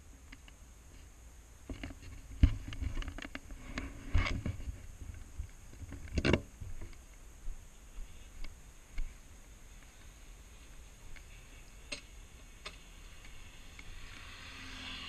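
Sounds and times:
knocks and rustles on helmet: 1.7s - 7.0s.

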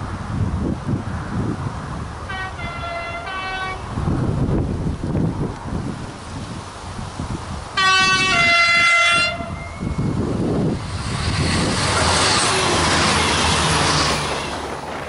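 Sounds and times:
diesel railcar passing: 1.0s - 15.0s
two-tone train horn: 2.3s - 3.9s, 7.8s - 10.0s, 12.2s - 13.9s.

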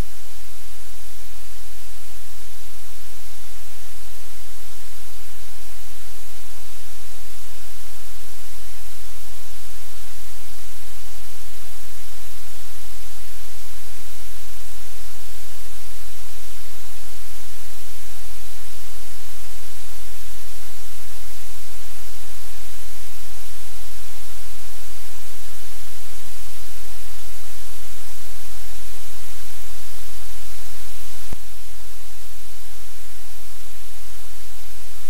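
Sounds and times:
static hiss: 0.0s - 35.0s.

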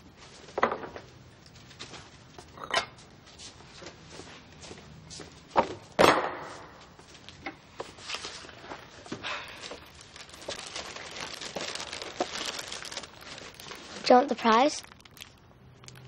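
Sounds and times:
cereal rattling into bowl: 10.3s - 16.0s.

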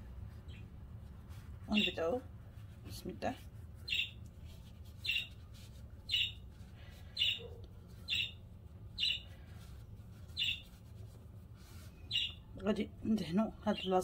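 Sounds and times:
low steady hum: 0.0s - 14.0s
bird chirping: 0.3s - 0.8s, 1.7s - 2.2s, 3.8s - 9.5s, 10.3s - 10.8s, 11.9s - 14.0s.

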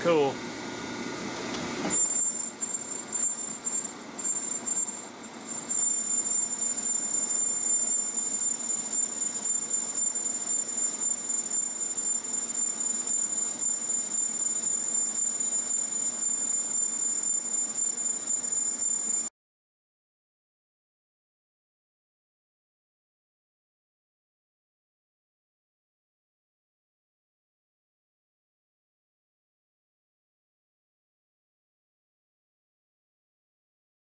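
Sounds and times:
metal lathe running: 1.3s - 19.3s
high-pitched cutting squeal: 1.8s - 19.3s.

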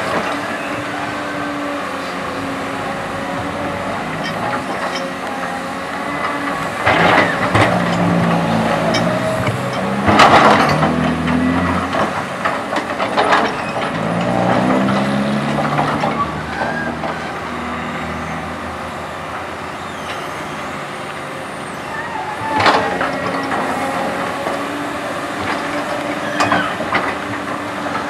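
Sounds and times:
excavator diesel engine: 0.0s - 28.0s
bucket clanks and scrapes: 6.6s - 17.1s.

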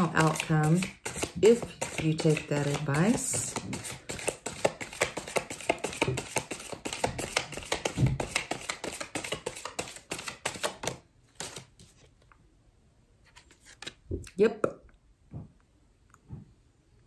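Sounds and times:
cards being shuffled: 0.0s - 12.3s, 13.2s - 14.0s.

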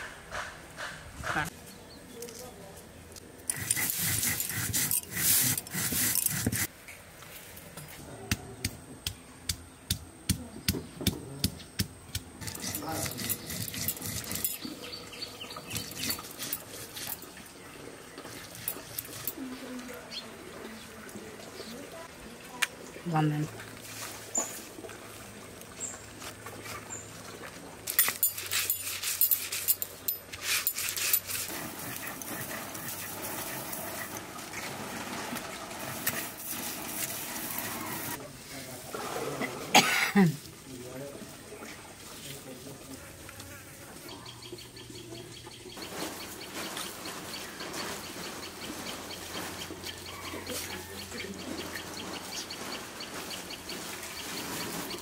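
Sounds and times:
stone roller scraping: 3.5s - 6.7s, 12.4s - 17.3s, 27.9s - 38.2s
stone grinding dried prawns: 12.4s - 14.7s, 15.6s - 17.2s.

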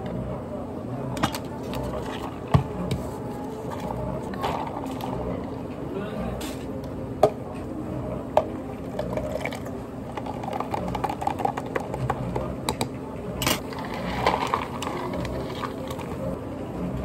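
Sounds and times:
liquid pouring: 8.9s - 12.2s, 13.6s - 16.2s.

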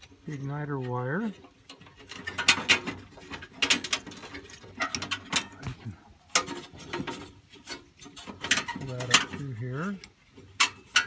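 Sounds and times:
metallic clicks rattles and scrapes: 0.0s - 11.0s.

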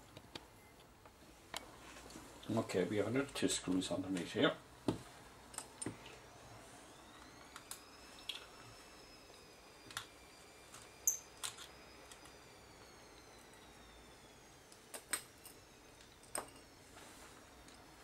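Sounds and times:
faint high whine: 0.0s - 18.0s.

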